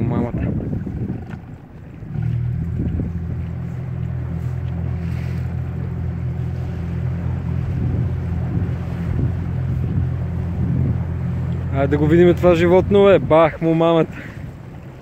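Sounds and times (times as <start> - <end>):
outboard motor humming: 0.0 - 15.0.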